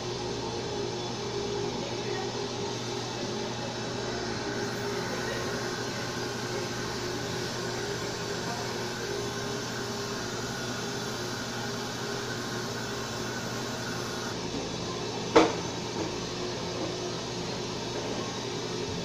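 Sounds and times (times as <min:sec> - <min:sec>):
dental suction hiss: 0:08.8 - 0:14.4.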